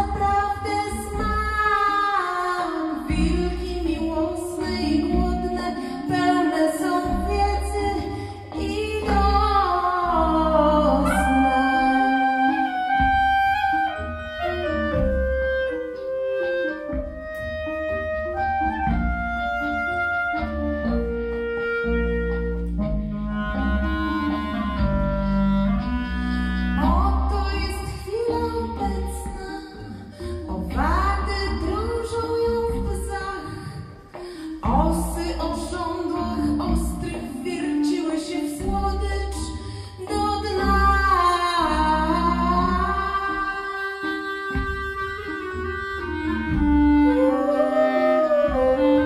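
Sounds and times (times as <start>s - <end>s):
low bass: 3.0s - 33.8s, 34.6s - 37.4s, 38.6s - 43.6s
clarinet playing held notes: 10.2s - 29.9s, 42.0s - 49.0s.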